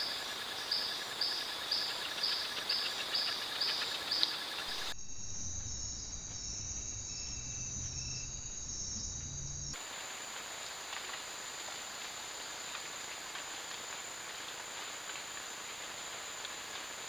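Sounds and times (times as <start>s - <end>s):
high insect whine: 0.0s - 17.0s
hissy forest background: 0.0s - 17.0s
insects trilling: 0.0s - 17.0s
low hum: 4.7s - 9.8s.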